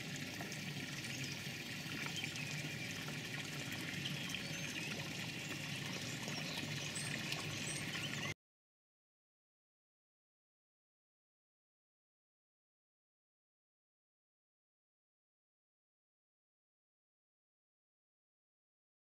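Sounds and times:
water trickling into pond: 0:00.0 - 0:08.4.

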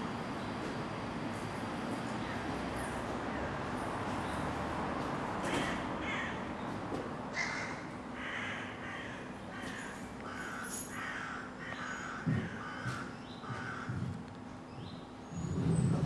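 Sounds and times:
steady low hum: 0:00.0 - 0:16.0
crows cawing: 0:05.4 - 0:06.5, 0:07.3 - 0:14.2.

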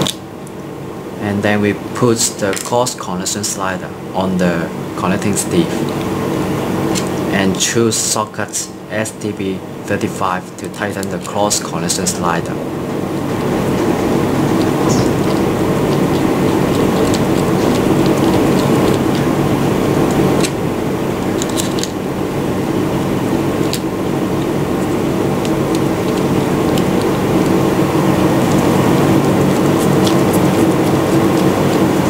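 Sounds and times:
mechanical hum: 0:00.0 - 0:32.0.

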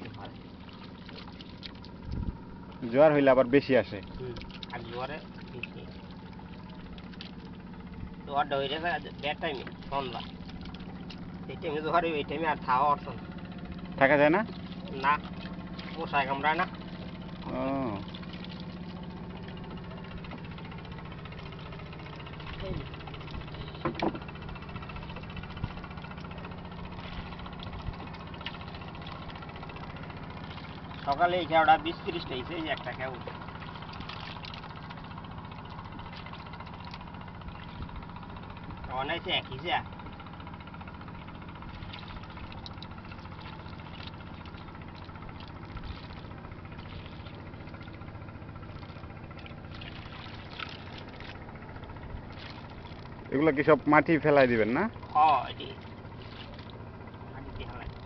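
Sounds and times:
engine chugging: 0:00.0 - 0:58.0
wet mud squelches and trickles: 0:00.0 - 0:58.0
soft knocks: 0:23.8 - 0:24.2.

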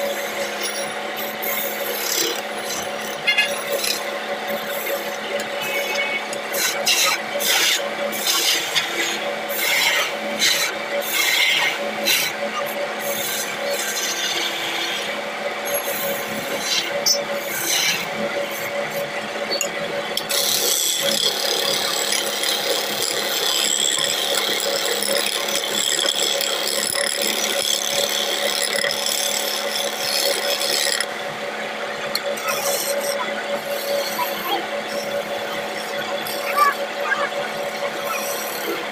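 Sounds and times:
wood lathe humming: 0:00.0 - 0:12.3, 0:13.0 - 0:19.4, 0:20.0 - 0:38.9
chisel scraping wood: 0:01.8 - 0:05.1, 0:20.3 - 0:31.1.

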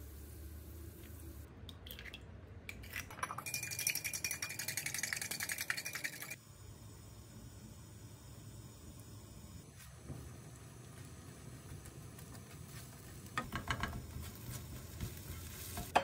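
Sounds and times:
fork whisking egg in glass: 0:03.1 - 0:06.4.

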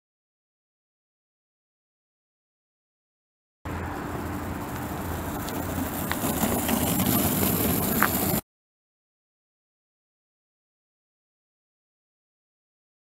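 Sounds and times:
longboard wheels rolling on asphalt: 0:03.7 - 0:08.4.

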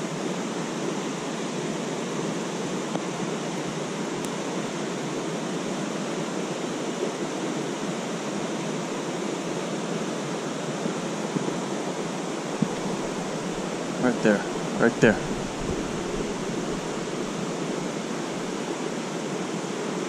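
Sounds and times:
creek water rushing: 0:00.0 - 0:20.0.

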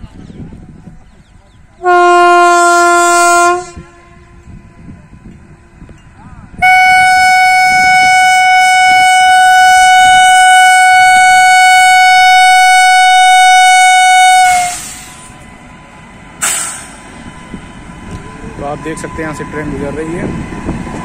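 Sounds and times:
locomotive air horn blast: 0:01.8 - 0:04.6, 0:06.6 - 0:15.4.

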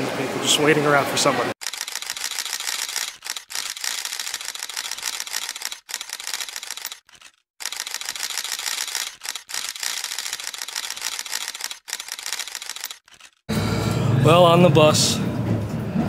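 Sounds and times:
camera shutters clicking: 0:01.6 - 0:13.4.

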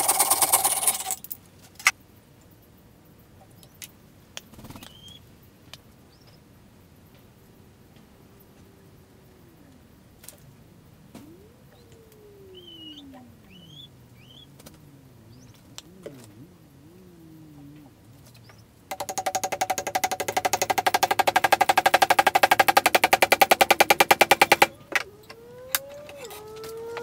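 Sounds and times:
handheld power saw cutting wood: 0:00.0 - 0:01.2, 0:18.9 - 0:27.0
sharp knocks: 0:18.9 - 0:25.1.

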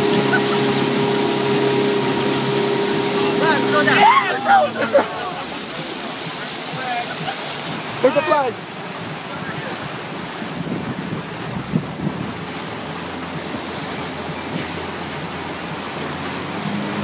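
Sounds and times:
boat engine running: 0:00.0 - 0:17.0
rushing water: 0:00.0 - 0:17.0
wind on microphone: 0:09.0 - 0:15.8.

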